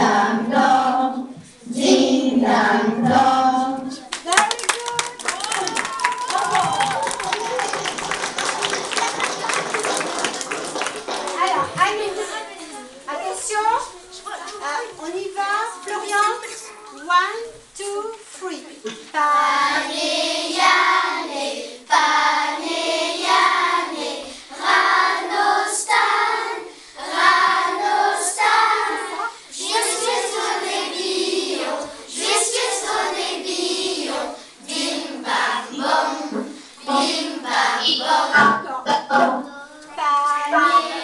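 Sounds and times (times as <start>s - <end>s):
children singing together: 0.0s - 4.1s, 19.1s - 39.9s, 40.5s - 41.0s.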